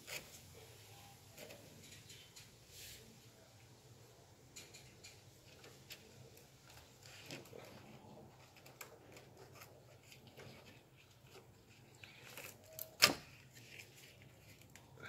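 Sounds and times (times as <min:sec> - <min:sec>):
tools clicking and rubbing: 0:01.3 - 0:03.0, 0:04.6 - 0:07.6.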